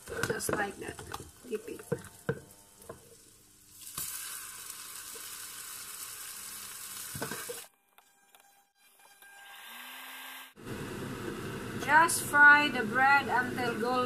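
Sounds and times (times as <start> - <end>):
bread sizzling in frying pan: 3.2 - 7.7.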